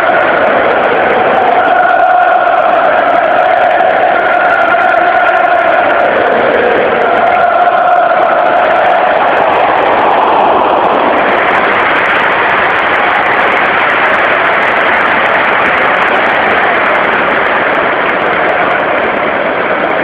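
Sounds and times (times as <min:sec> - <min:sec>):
crowd singing a chant: 0:00.0 - 0:11.8
stadium crowd roaring: 0:00.0 - 0:20.0.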